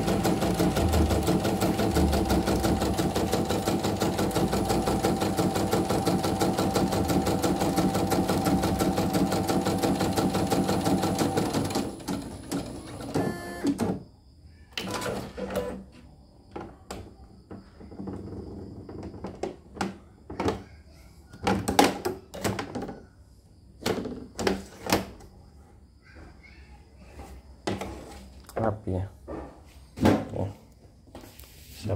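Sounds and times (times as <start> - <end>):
embroidery machine stitching: 0.0 - 13.9.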